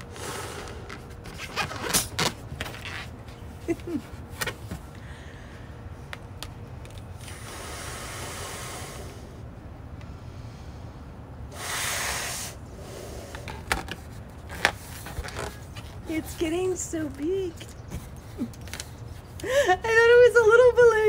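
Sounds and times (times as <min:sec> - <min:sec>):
blowing up balloon by mouth: 0:00.0 - 0:02.4, 0:07.2 - 0:09.4, 0:11.5 - 0:14.0.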